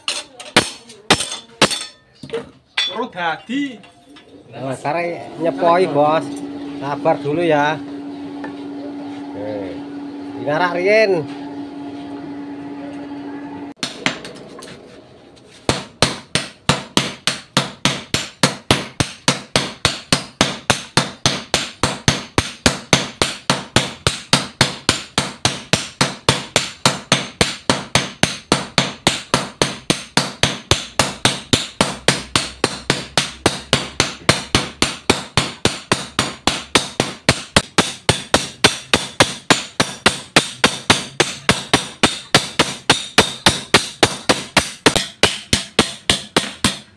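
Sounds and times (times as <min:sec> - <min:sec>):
hammers clanging on anvil: 0:00.0 - 0:04.3, 0:15.7 - 0:46.9.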